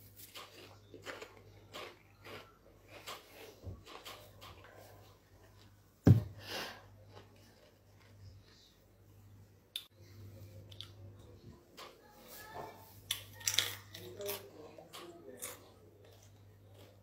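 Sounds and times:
mouth clicks and chewing: 0.2s - 4.8s.

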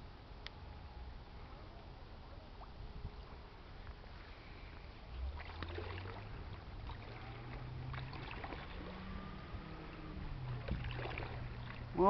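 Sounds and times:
ship engine drone: 4.3s - 12.0s.

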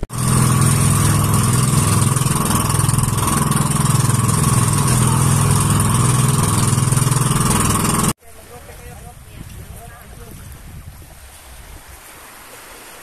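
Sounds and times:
boat engine running: 0.0s - 8.2s
wind and water hiss: 0.0s - 13.0s.

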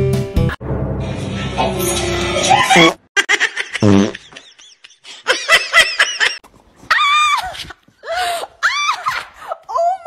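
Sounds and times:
people laughing: 2.4s - 6.4s.

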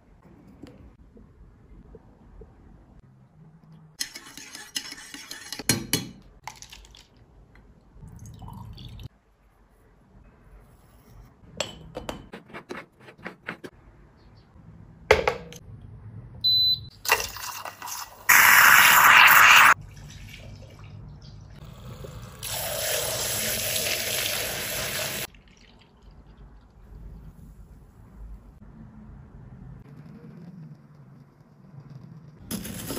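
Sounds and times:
coffee pot hissing: 17.8s - 19.8s, 21.9s - 25.3s.

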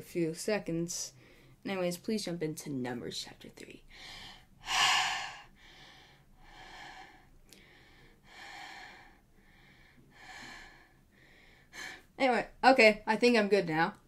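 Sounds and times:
person breathing deeply: 3.9s - 12.1s.

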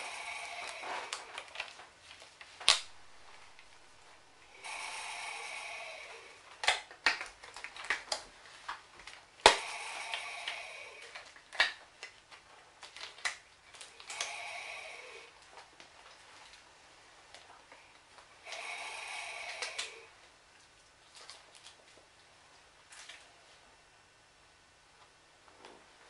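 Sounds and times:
breathing through face mask: 0.0s - 1.4s, 4.5s - 6.4s, 9.6s - 11.2s, 14.0s - 15.3s, 18.4s - 20.1s.

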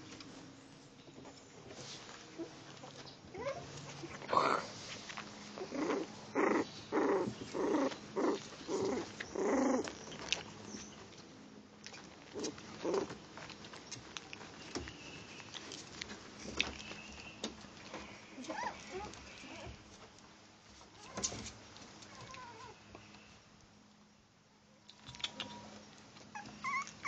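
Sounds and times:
puppy play-growling: 2.8s - 10.7s, 11.8s - 14.6s, 18.4s - 19.9s, 26.2s - 27.0s.

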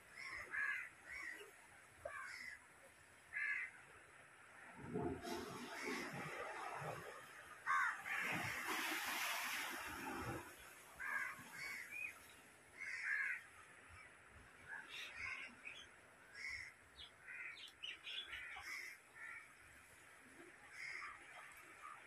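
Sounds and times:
birds calling: 14.8s - 19.5s.

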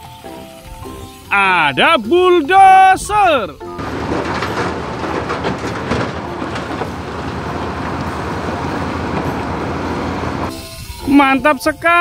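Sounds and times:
steel tracks clattering on rock: 0.6s - 11.2s
bulldozer diesel engine: 1.8s - 10.9s
rubble tumbling from a truck: 2.5s - 10.5s.

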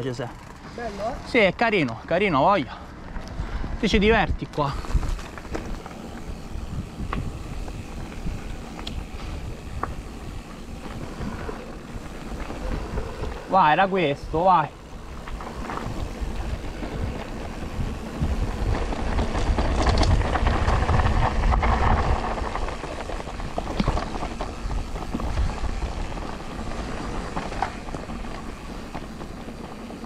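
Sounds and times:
bike tyres rumbling on dirt: 0.0s - 30.0s
wind noise: 2.3s - 30.0s.

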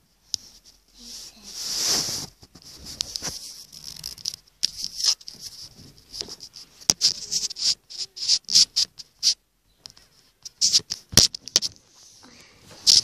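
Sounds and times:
handling noise rustling: 0.2s - 7.6s.

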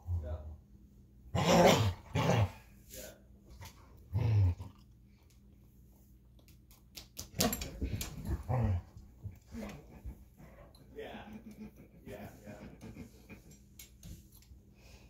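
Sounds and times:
dogs growling and barking: 1.3s - 2.7s, 3.6s - 5.0s, 7.3s - 13.9s.

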